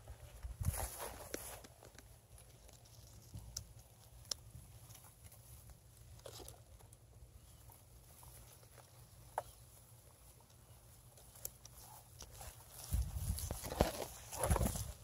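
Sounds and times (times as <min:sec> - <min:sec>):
soft clicks and rustles in dry grass: 0:00.0 - 0:15.0.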